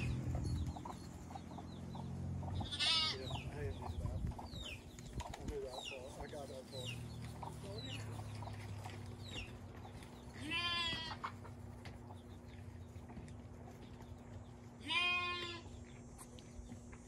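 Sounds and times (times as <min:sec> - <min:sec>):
baby goats bleating: 0:02.6 - 0:03.5, 0:10.3 - 0:11.4, 0:14.8 - 0:15.8.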